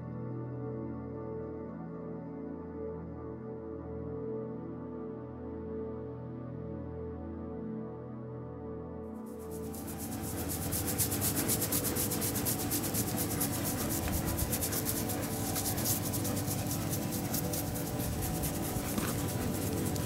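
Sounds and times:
fingers scratching fur: 9.3s - 20.0s.

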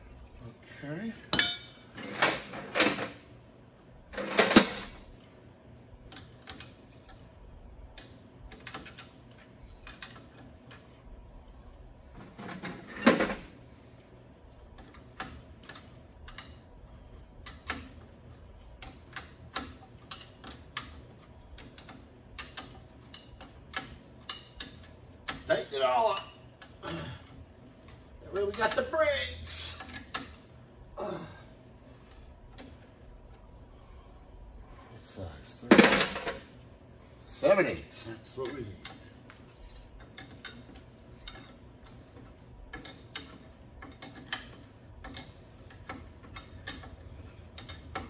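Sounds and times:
wrenches clanking: 1.2s - 3.2s, 4.2s - 11.0s, 17.4s - 31.4s, 37.4s - 48.0s.

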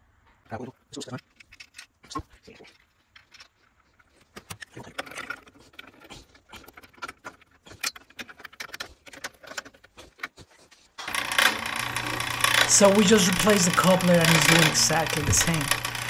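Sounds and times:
pump running: 11.0s - 16.0s.

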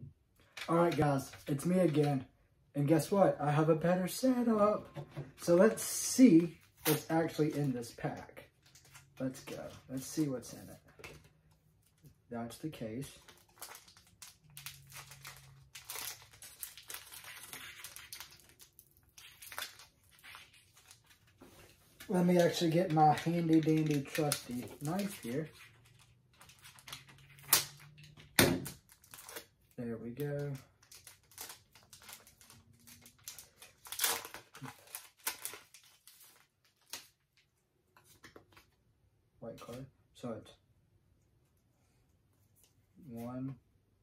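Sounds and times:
foil wrapper crinkling: 13.2s - 28.0s, 30.4s - 37.2s.

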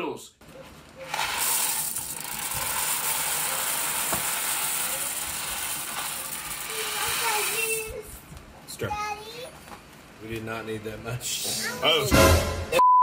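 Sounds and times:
dry pasta pouring from box: 1.1s - 7.8s.

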